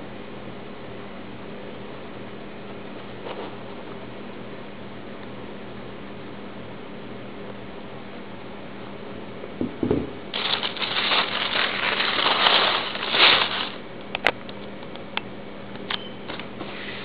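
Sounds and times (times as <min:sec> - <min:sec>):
tissue paper rustling: 0:10.4 - 0:13.8.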